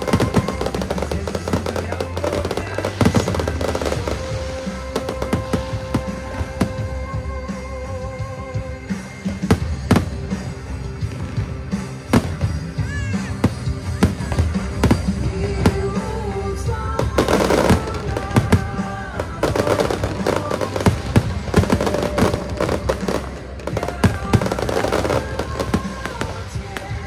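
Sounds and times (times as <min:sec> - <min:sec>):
firework shells bursting: 0:00.0 - 0:07.0
music: 0:00.0 - 0:27.0.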